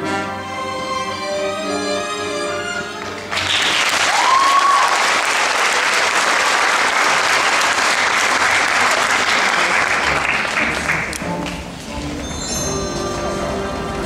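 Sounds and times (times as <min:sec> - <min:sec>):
audience applauding: 0:03.0 - 0:11.7.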